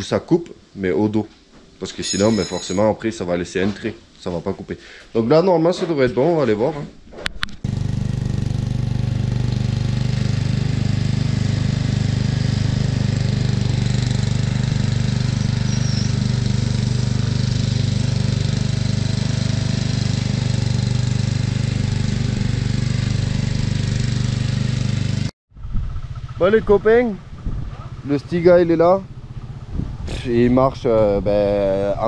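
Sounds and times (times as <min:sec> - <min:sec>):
ride-on lawn mower engine running: 0:07.6 - 0:26.6, 0:27.2 - 0:30.0.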